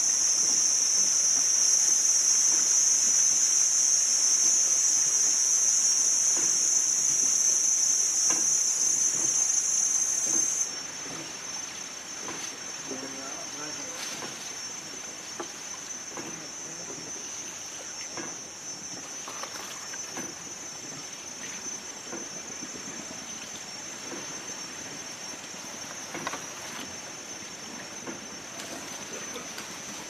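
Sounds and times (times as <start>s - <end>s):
steady high-pitched hiss: 0.0s - 30.0s
water lapping around a boat: 13.9s - 30.0s
oar splashes: 14.0s - 30.0s.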